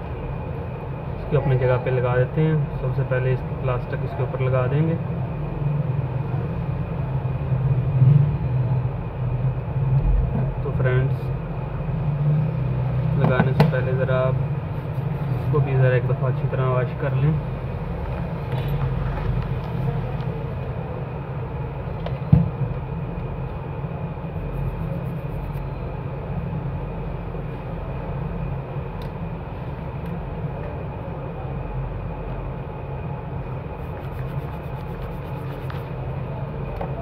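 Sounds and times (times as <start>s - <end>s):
low background hum: 0.0s - 37.0s
faint high whine: 19.8s - 37.0s.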